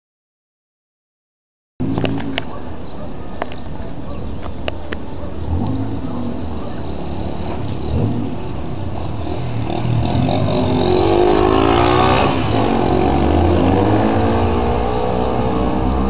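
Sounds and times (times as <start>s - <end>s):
vehicle engine speeding up: 7.0s - 16.0s.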